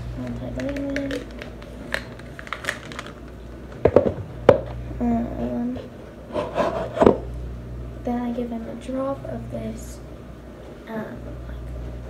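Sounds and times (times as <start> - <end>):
plastic bottles clattering: 0.2 - 3.2
plastic bottles clicking and tapping: 0.2 - 4.6.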